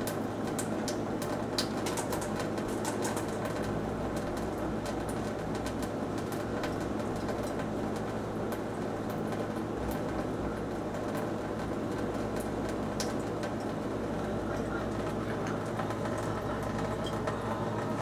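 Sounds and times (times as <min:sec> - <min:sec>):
low steady hum: 0:00.0 - 0:18.0
tap water trickling into sink: 0:14.4 - 0:18.0.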